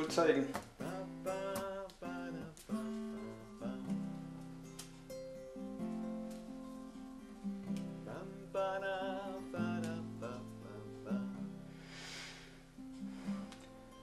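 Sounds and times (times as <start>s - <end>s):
acoustic guitar music: 0.0s - 14.0s
short hissing swell: 11.8s - 12.6s.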